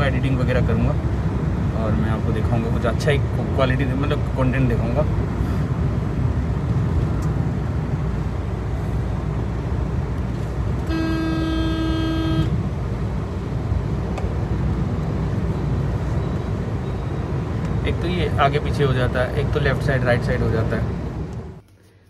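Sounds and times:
car cabin road noise: 0.0 - 22.0
vehicle horn: 10.9 - 12.6.

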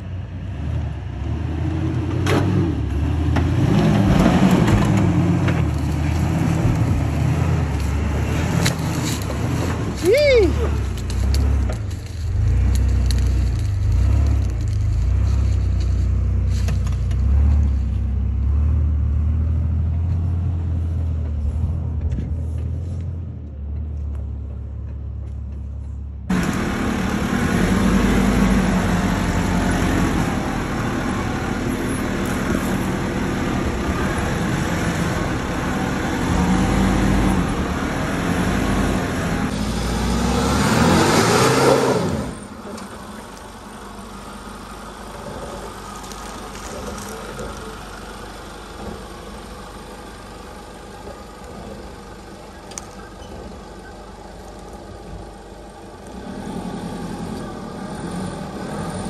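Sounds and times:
engine revving: 0.0 - 20.8, 26.3 - 49.1, 56.0 - 59.0
off-road engines at low speed: 0.0 - 59.0
vehicle passing with deep drone: 10.7 - 24.1, 26.3 - 48.9.

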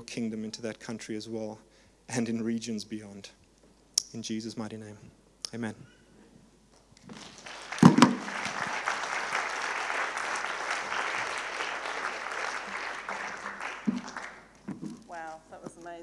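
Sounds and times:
congregation applauding: 7.0 - 14.6.

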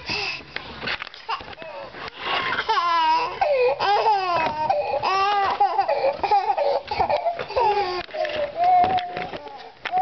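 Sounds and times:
toddler crying: 2.6 - 10.0.

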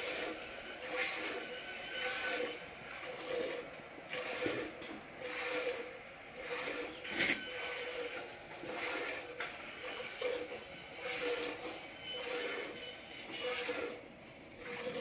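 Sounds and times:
milk squirting into metal pot: 3.1 - 8.0.

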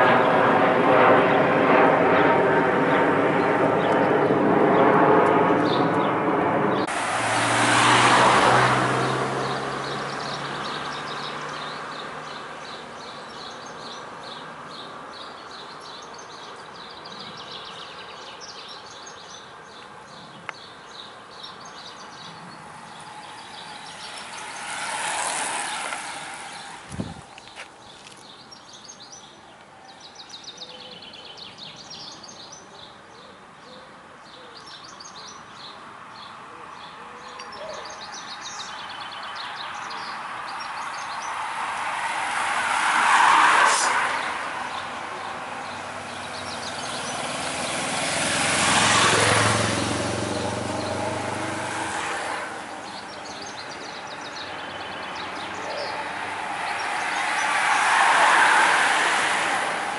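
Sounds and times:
vehicles passing on road: 0.0 - 59.9
birds chirping: 2.2 - 59.9
low engine hum: 43.7 - 57.4.

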